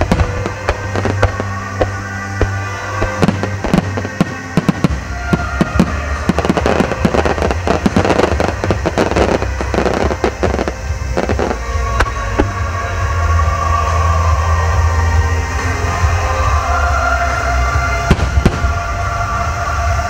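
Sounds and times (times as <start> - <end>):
firework shells bursting: 0.0 - 12.6.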